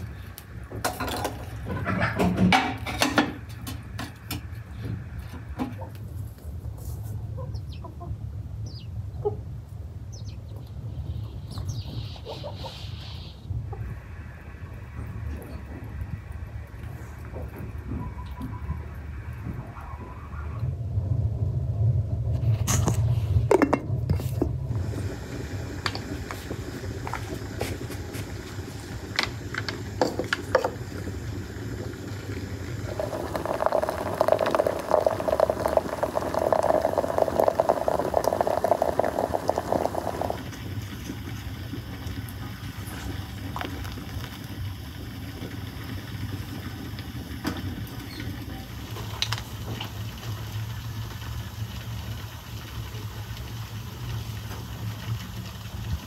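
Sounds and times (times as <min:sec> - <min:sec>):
hot water pouring into teapot: 0:00.0 - 0:01.8, 0:22.6 - 0:56.0
steady low hum: 0:13.0 - 0:56.0.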